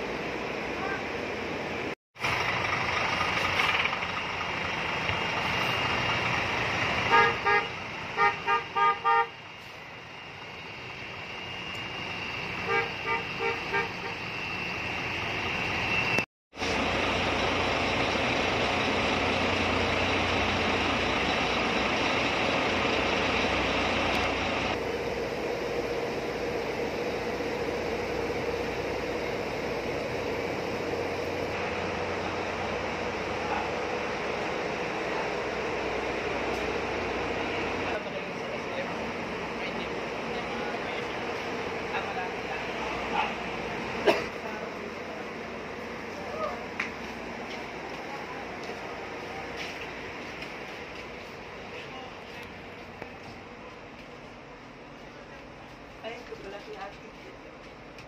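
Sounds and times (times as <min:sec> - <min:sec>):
diesel bus engine running: 0:00.0 - 0:58.0
bus horn toots: 0:07.0 - 0:09.4, 0:12.6 - 0:14.2.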